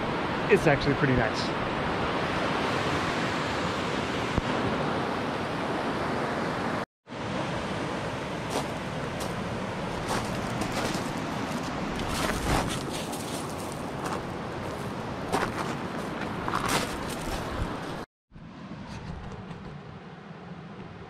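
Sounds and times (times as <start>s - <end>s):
stones crunching: 10.0s - 15.8s.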